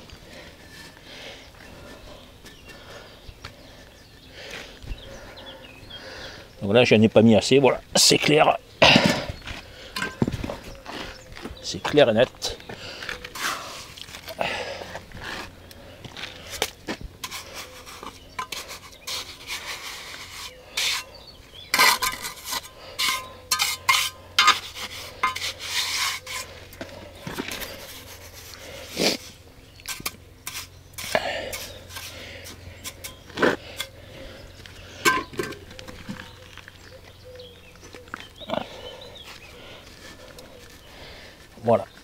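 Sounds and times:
trowel scraping mortar: 0:13.0 - 0:15.6, 0:16.2 - 0:34.1.

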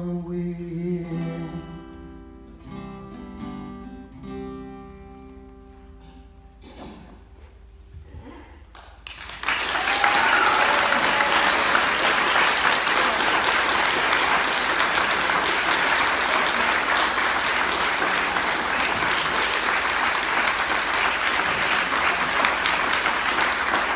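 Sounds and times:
audience applauding: 0:08.8 - 0:23.9.

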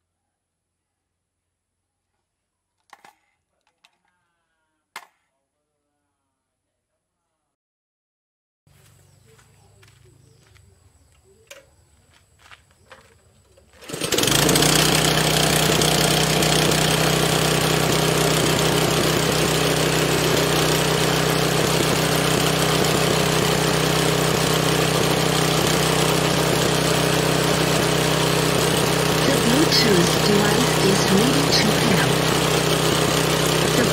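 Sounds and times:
small petrol engine running: 0:13.6 - 0:33.9.

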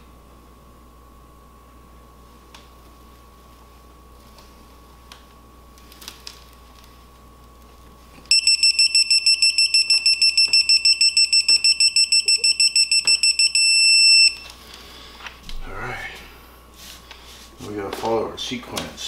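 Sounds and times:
torque wrench beeping: 0:08.3 - 0:14.5.

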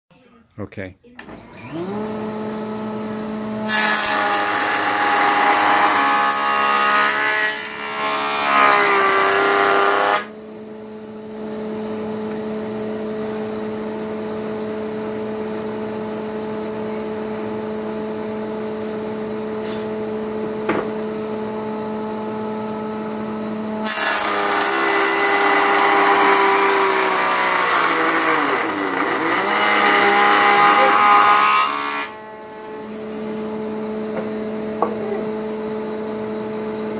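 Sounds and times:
jointer cutting wood: 0:01.2 - 0:10.4, 0:23.1 - 0:35.8
jointer motor whine: 0:01.2 - 0:36.9.

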